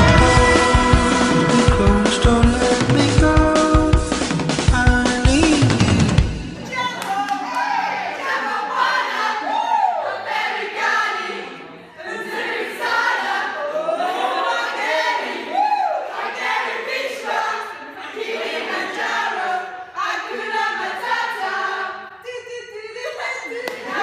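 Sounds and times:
women singing together: 7.5s - 24.0s.

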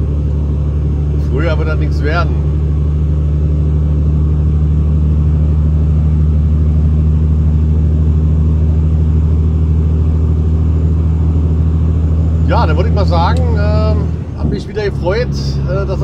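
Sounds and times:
truck diesel engine droning: 0.0s - 16.0s
tyre and road noise: 7.8s - 16.0s.

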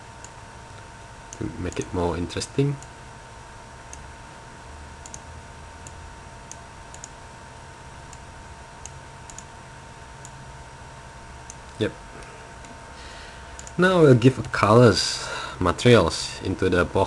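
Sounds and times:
background hiss and hum: 0.0s - 17.0s
faint computer mouse clicks: 8.8s - 9.5s, 13.6s - 13.8s.

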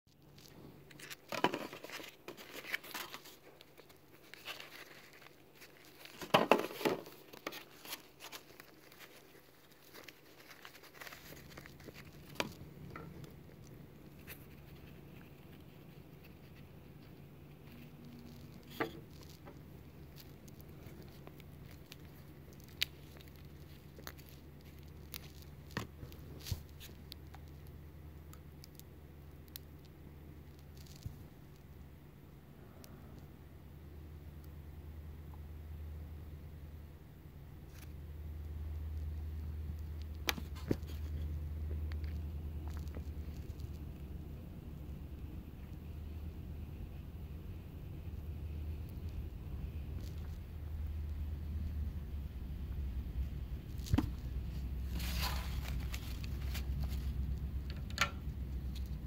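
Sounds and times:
low steady hum: 0.1s - 59.0s
paper towel rustling: 54.1s - 57.1s.

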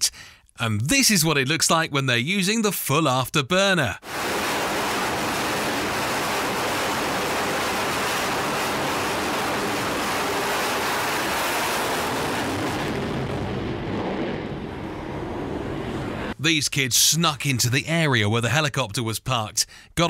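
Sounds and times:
jet engines roaring on afterburner: 4.0s - 16.4s.

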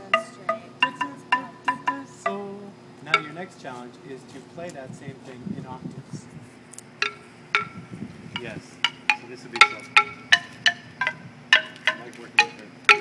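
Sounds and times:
xylophone notes: 0.0s - 3.5s, 7.0s - 13.0s.

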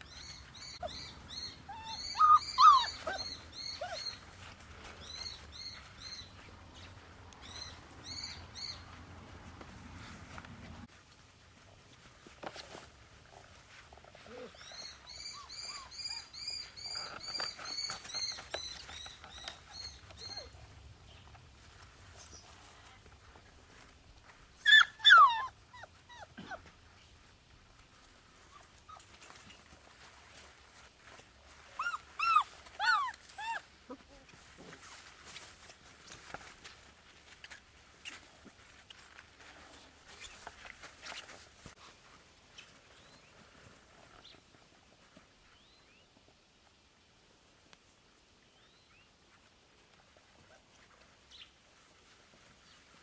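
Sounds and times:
puppy yelping: 0.2s - 4.3s, 14.3s - 18.4s, 24.6s - 26.7s, 31.8s - 34.3s
puppy whimpering: 0.3s - 4.4s, 14.2s - 18.4s, 24.6s - 26.7s, 31.8s - 34.3s.

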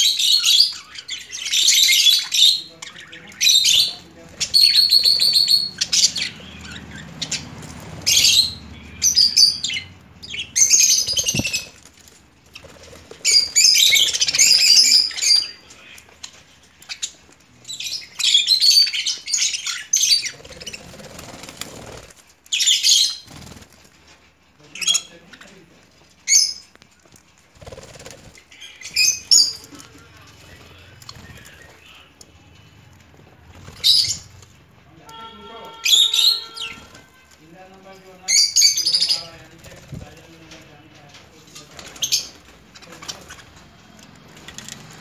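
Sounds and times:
budgerigars chattering and chirping: 0.0s - 23.6s, 27.5s - 32.3s, 33.4s - 34.7s, 35.8s - 40.6s.

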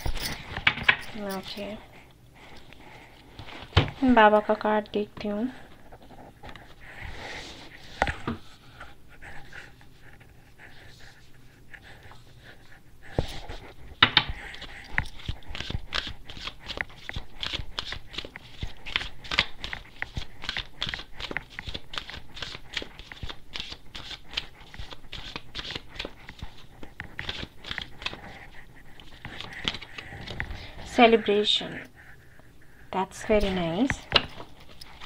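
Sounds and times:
cards being shuffled: 13.2s - 30.7s.

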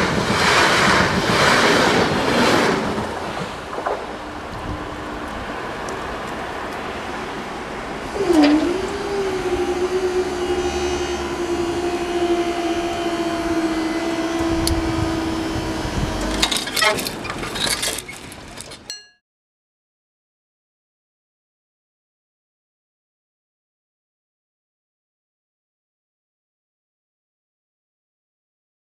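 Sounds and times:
barrier motor humming: 8.1s - 16.8s.

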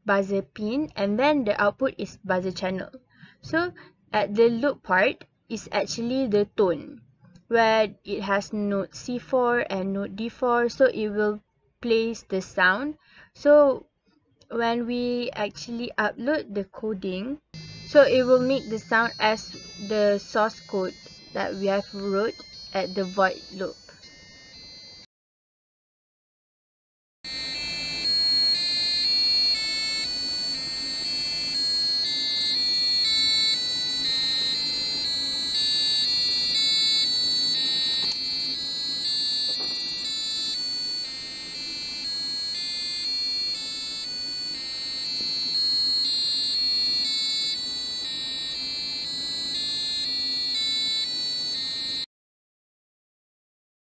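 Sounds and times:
buzzer beeping a tune: 17.6s - 25.1s, 27.3s - 52.1s.

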